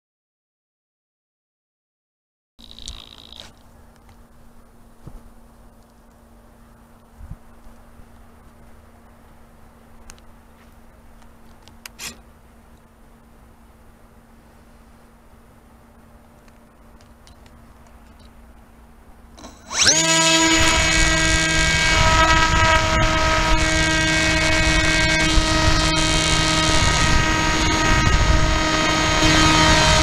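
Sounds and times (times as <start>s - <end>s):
electric motor and propeller whine: 2.6s - 3.6s, 19.3s - 30.0s.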